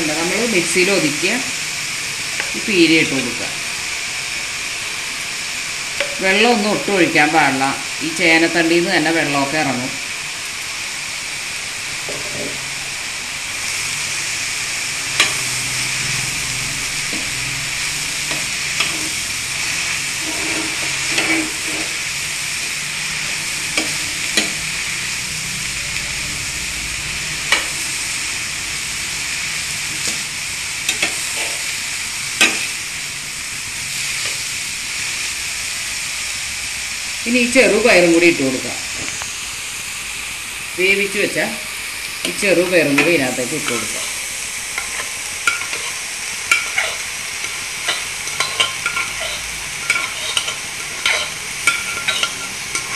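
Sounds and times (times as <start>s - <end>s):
food sizzling in a pan: 0.0s - 52.9s
metal spoon clinking pan: 44.8s - 52.9s.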